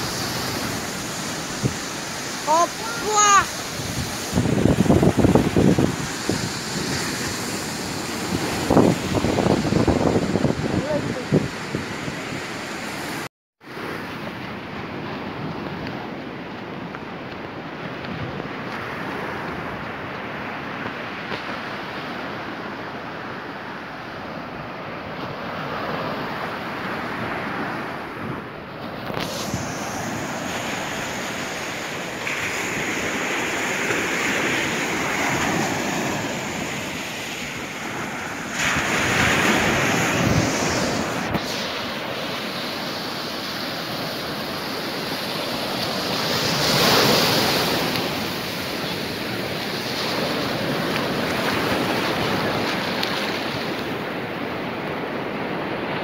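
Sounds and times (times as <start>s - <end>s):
wind on microphone: 0.0s - 13.3s, 25.5s - 56.0s
surf breaking on sand: 0.0s - 56.0s.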